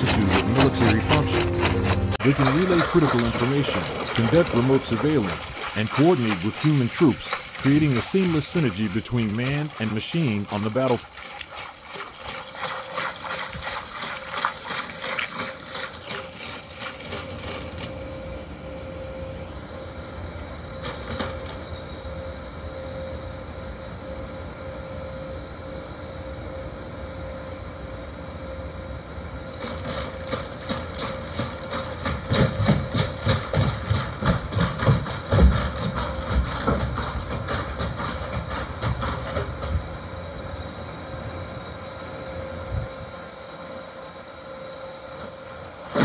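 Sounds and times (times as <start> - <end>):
feet splashing through shallow water: 0.0 - 18.0
footsteps clattering on metal floor: 30.8 - 39.8.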